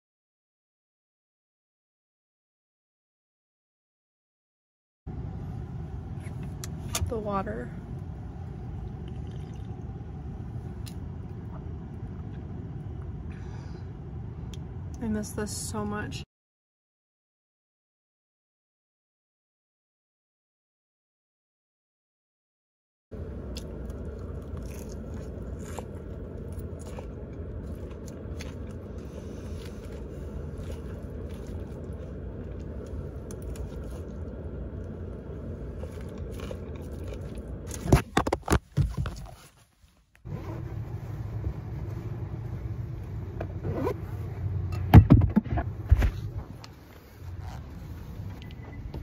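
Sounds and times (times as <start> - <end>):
low rumble: 23.1 - 38.1.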